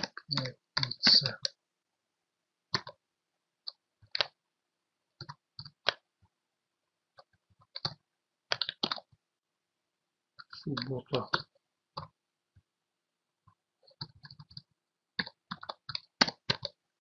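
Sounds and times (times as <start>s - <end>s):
computer keyboard typing: 0.0s - 1.6s, 2.7s - 3.0s, 3.7s - 4.4s, 5.2s - 6.0s, 7.2s - 9.2s, 10.4s - 12.2s, 13.8s - 16.8s.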